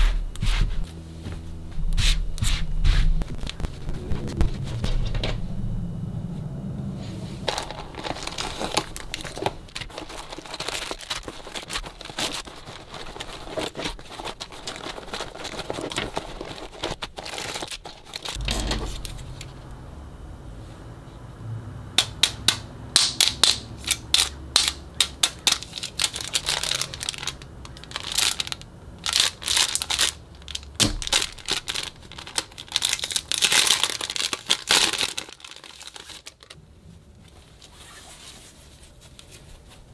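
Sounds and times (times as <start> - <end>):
plastic packaging crinkling: 3.2 - 4.0, 7.4 - 19.6, 23.2 - 36.6
sharp plastic crackles: 3.2 - 5.3, 7.4 - 19.6, 22.0 - 36.6.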